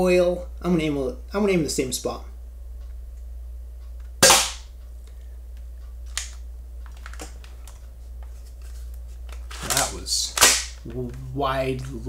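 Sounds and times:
airsoft pistol shot: 4.2 - 4.7, 10.4 - 10.8.

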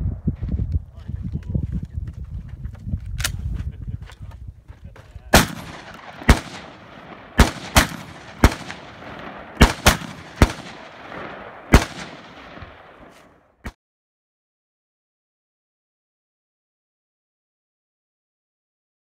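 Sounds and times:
rifle shots with echo: 5.3 - 13.4.

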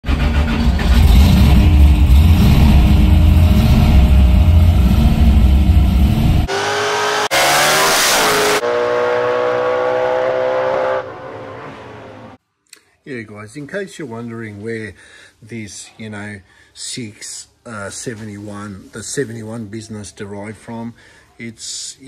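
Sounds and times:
drag car engine revving: 0.0 - 12.4
car engine rumble in cabin: 0.1 - 6.5.

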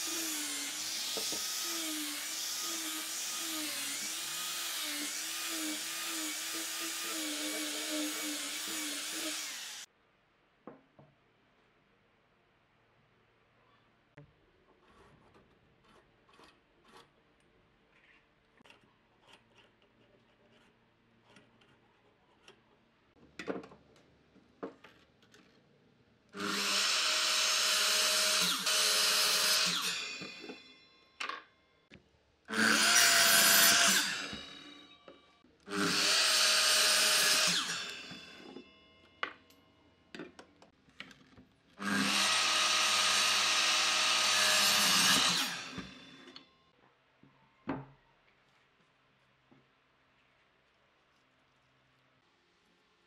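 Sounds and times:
electric miter saw cutting wood: 0.0 - 9.9, 26.4 - 30.6, 32.5 - 34.9, 35.7 - 38.6, 41.8 - 46.4.

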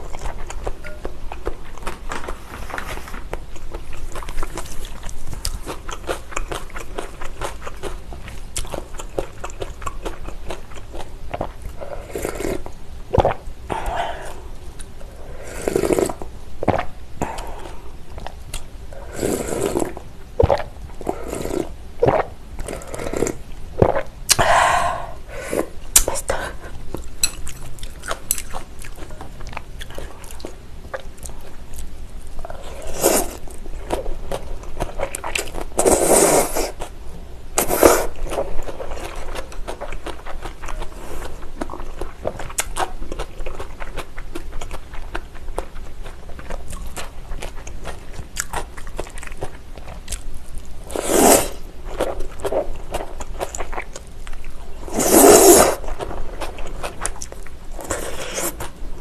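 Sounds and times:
chewing: 0.0 - 15.0, 26.9 - 36.0, 37.6 - 58.8
slurping noodles: 15.3 - 16.2, 19.0 - 24.5, 32.5 - 33.4, 35.8 - 36.8, 50.9 - 51.6, 54.8 - 55.9, 57.8 - 58.7.

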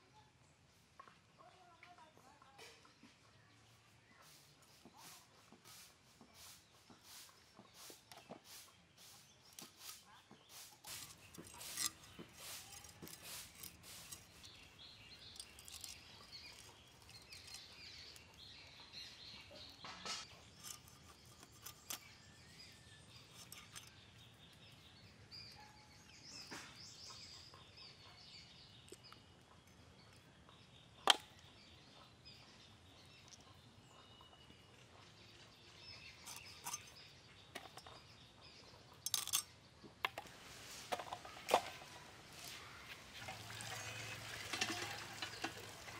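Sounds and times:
birds chirping: 0.0 - 45.9
blade scraping fish: 9.6 - 18.4.

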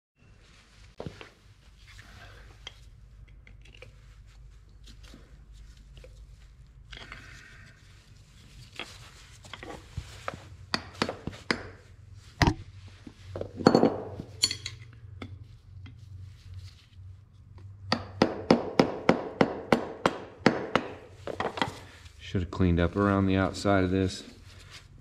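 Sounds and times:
metal clinks: 13.6 - 15.0.

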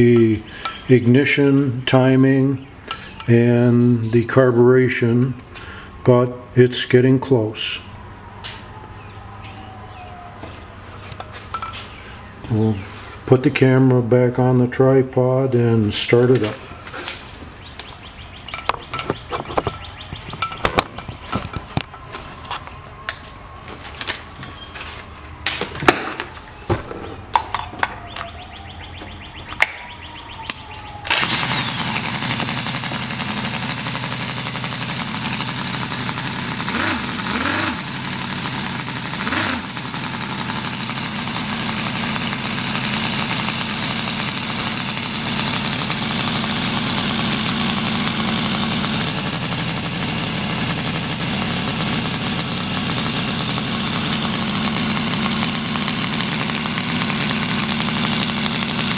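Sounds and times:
model engine running: 31.0 - 58.9.

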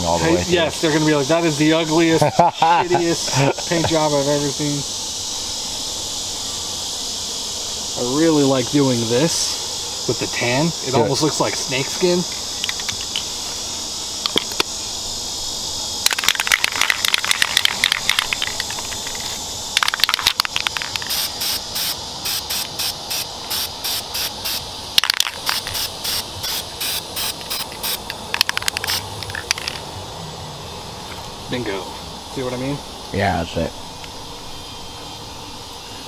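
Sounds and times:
insects buzzing: 0.0 - 36.0
spray-paint can spraying: 16.0 - 29.8.

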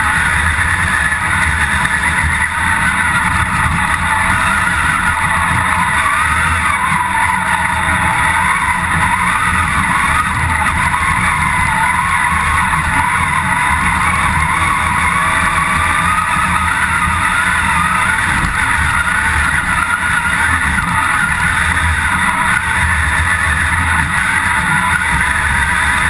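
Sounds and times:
off-road vehicle engine running hard: 0.0 - 26.0.

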